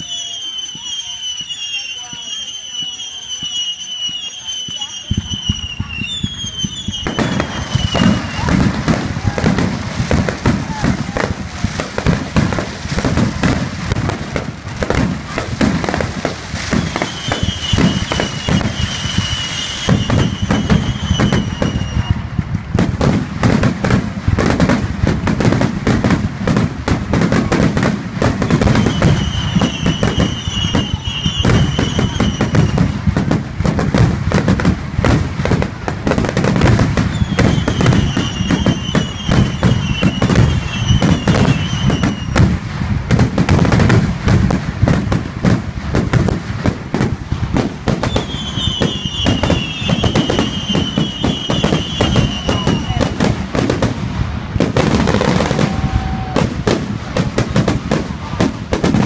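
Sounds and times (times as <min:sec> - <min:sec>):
high falling whistles: 0:00.0 - 0:08.5, 0:16.7 - 0:22.2, 0:28.6 - 0:32.8, 0:37.1 - 0:42.4, 0:48.1 - 0:53.0
fireworks bangs and crackles: 0:00.0 - 0:59.0.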